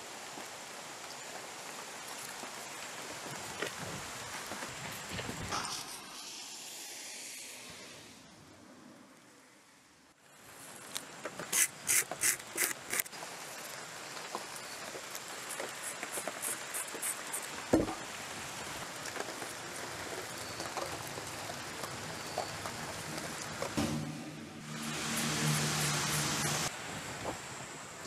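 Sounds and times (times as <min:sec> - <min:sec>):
blade scratching wood: 0:11.5 - 0:13.1
knock: 0:17.7 - 0:18.0, 0:23.8 - 0:24.3.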